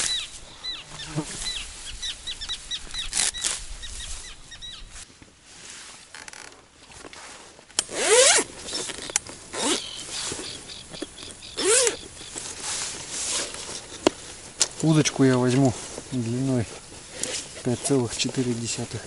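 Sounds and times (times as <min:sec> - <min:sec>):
zipper being pulled open: 0:07.8 - 0:10.4, 0:11.6 - 0:12.0, 0:13.1 - 0:13.9, 0:17.1 - 0:17.6.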